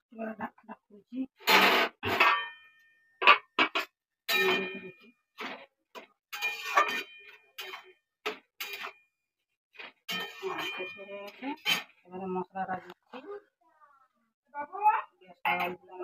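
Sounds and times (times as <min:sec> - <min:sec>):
utensil knocking on metal pots: 0:02.1 - 0:09.0.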